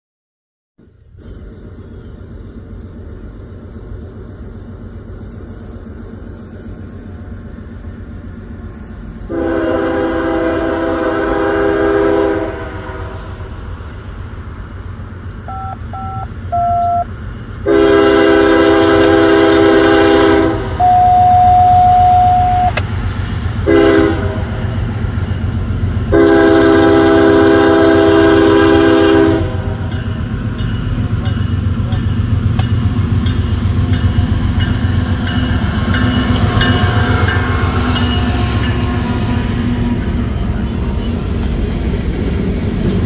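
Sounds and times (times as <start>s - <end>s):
low engine rumble: 0.8s - 43.0s
locomotive air horn: 9.3s - 13.3s, 17.6s - 22.8s, 23.6s - 24.6s, 26.1s - 29.9s.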